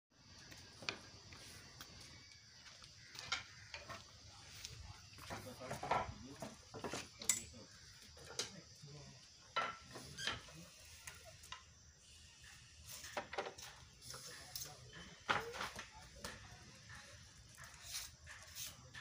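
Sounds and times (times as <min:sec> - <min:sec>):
light metallic clinks and knocks: 0:05.2 - 0:08.7.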